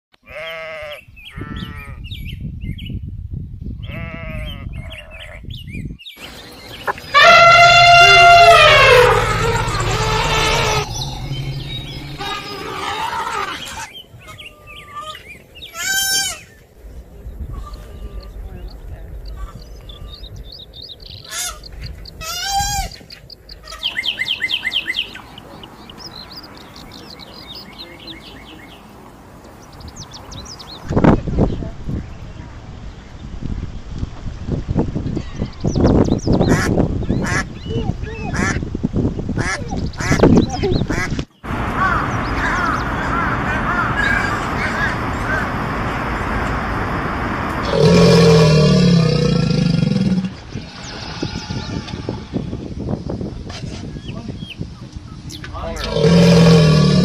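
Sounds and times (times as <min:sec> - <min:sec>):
goats and sheep bleating: 0:00.2 - 0:02.0, 0:03.8 - 0:05.0
high-pitched animal calls: 0:06.8 - 0:16.5, 0:47.6 - 0:52.3
elephant trumpeting: 0:06.9 - 0:14.0, 0:47.6 - 0:52.4, 0:55.8 - 0:57.0.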